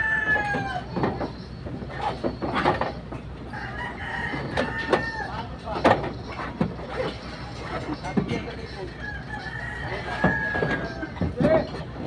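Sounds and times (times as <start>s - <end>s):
rooster crowing: 0.0s - 1.0s, 3.5s - 5.4s, 9.0s - 11.2s
knocks and rustles: 0.9s - 3.3s, 5.6s - 8.6s.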